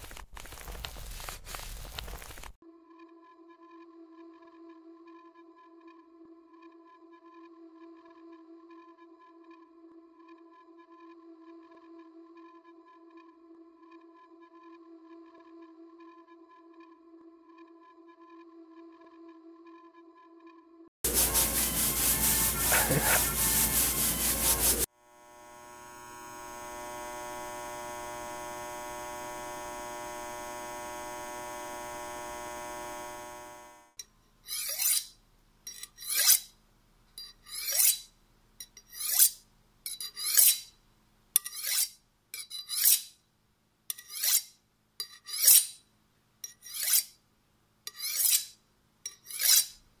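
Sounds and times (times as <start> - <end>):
knife scraping on honing steel: 21.1 - 24.9, 34.0 - 36.5, 37.2 - 40.8, 41.4 - 43.2, 43.9 - 45.8, 46.4 - 47.2, 47.9 - 49.8.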